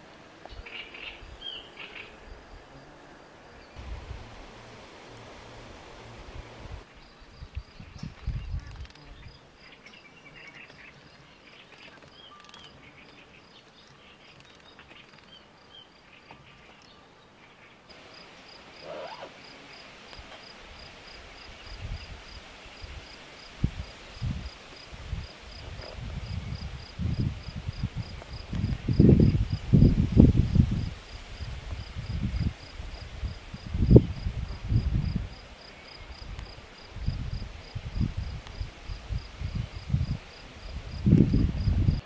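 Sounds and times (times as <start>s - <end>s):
low rumbling bumps: 3.8s - 6.9s
insect chirping: 17.9s - 42.0s.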